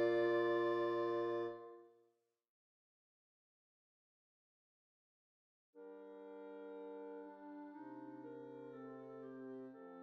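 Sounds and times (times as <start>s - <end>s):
clarinets and bassoon chord: 0.0s - 1.8s, 5.8s - 10.0s.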